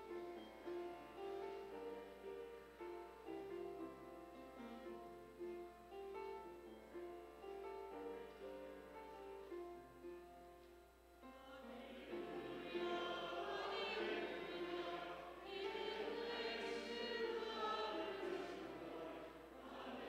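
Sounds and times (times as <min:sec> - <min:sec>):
congregation singing a hymn: 0:11.2 - 0:20.0.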